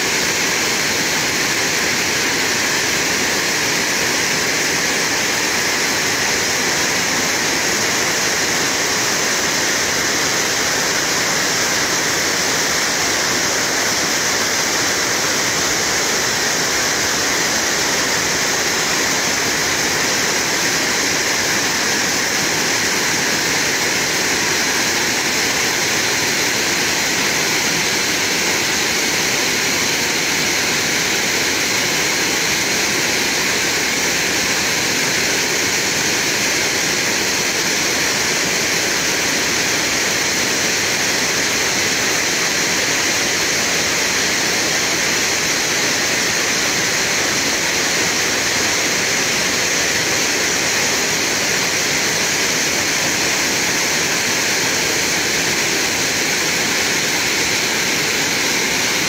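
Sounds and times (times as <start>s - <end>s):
water rushing over rocks: 0.0s - 59.0s.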